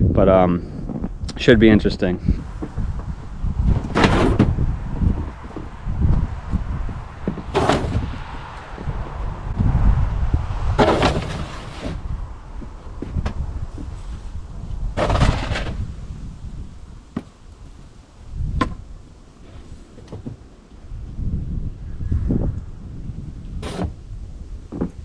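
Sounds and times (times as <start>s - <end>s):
wind rumble on microphone: 0.0s - 25.0s
metal shovel scraping snow: 10.8s - 12.0s, 23.6s - 23.9s.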